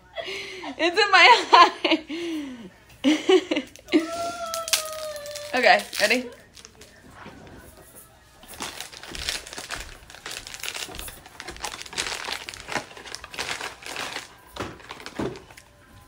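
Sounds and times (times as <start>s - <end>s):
faint music: 0.0s - 16.0s
lollipop crinkling and clicking: 4.5s - 6.9s, 8.5s - 15.6s.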